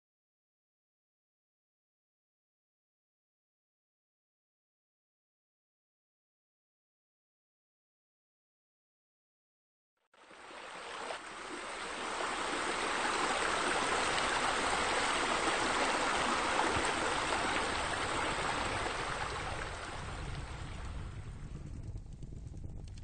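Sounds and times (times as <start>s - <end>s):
fountain water splashing: 10.2s - 21.3s.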